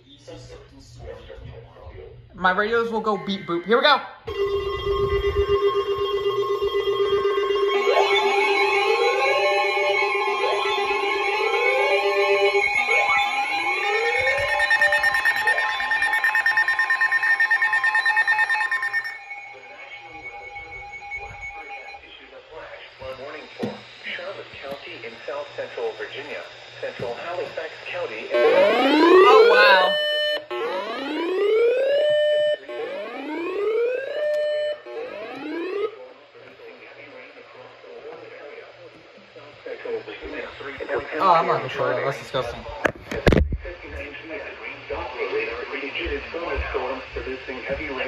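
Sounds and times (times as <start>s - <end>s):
rapid beeping: 3.2s - 36.0s
steady alert tones: 4.3s - 22.0s, 28.3s - 36.0s
siren-like sweeps: 4.3s - 23.6s, 28.3s - 36.0s.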